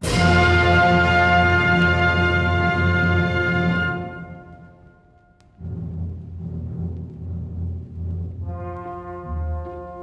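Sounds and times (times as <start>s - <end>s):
orchestral held chord with brass: 0.0s - 4.8s.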